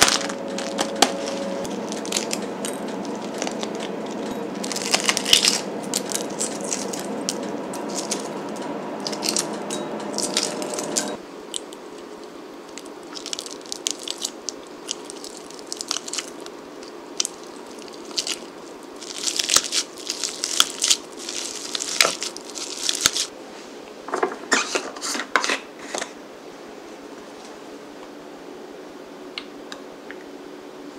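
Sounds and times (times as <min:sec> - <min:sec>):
egg shells crackling while peeled: 0:00.0 - 0:09.5, 0:11.5 - 0:23.3
low steady hum: 0:00.0 - 0:24.0.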